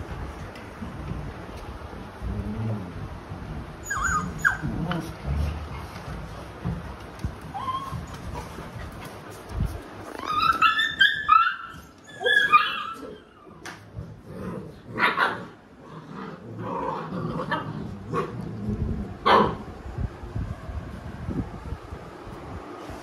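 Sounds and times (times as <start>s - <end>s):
puppies yelping: 3.8s - 4.7s, 7.5s - 8.4s, 10.2s - 13.6s
dogs barking and growling: 10.2s - 19.8s.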